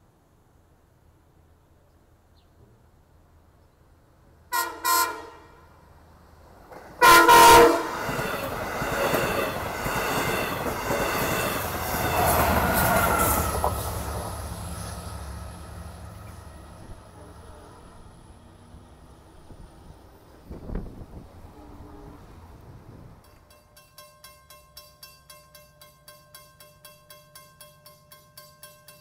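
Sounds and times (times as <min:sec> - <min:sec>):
train horn blasts: 0:04.5 - 0:05.8, 0:07.0 - 0:08.6, 0:21.4 - 0:22.4
train rumbling and clacking past: 0:05.8 - 0:29.0.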